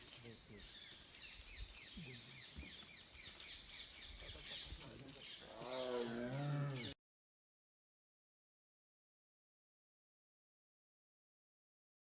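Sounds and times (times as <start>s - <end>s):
birds chirping faintly: 0.0s - 7.0s.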